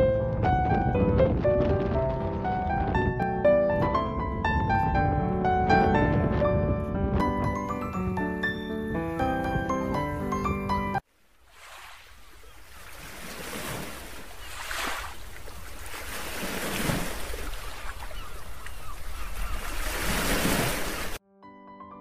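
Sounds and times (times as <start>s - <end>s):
soft piano music: 0.0s - 11.0s, 21.2s - 22.0s
small waves washing on beach: 11.1s - 21.2s.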